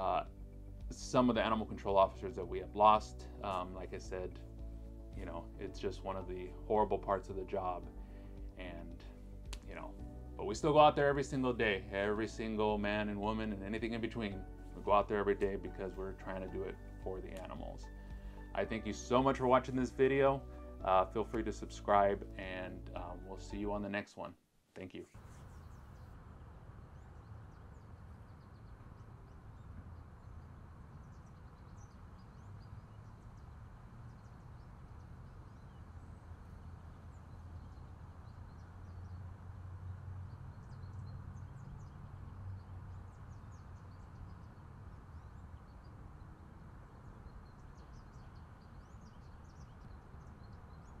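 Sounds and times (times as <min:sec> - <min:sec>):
steady low rumble: 0:00.0 - 0:23.2, 0:25.2 - 0:49.1
faint high bird chirps: 0:24.8 - 0:39.4, 0:40.3 - 0:51.0.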